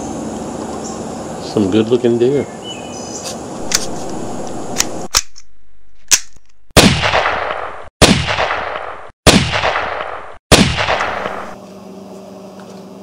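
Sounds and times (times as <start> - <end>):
outdoor background noise: 0.0 - 13.0
echoing gunshots: 6.8 - 11.6.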